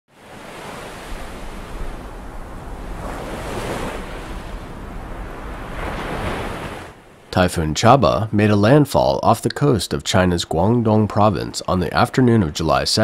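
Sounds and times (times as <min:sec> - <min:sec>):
storm waves breaking over seawall: 0:00.1 - 0:08.8
wind rumbling on microphone: 0:00.2 - 0:07.3.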